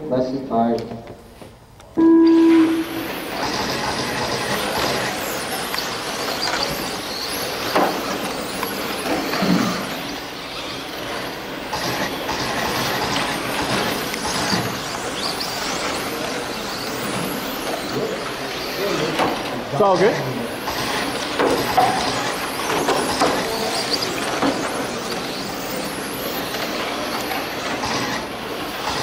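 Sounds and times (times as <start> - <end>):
motor whines: 2.1 - 29.0
radio-controlled cars whirring: 2.9 - 29.0.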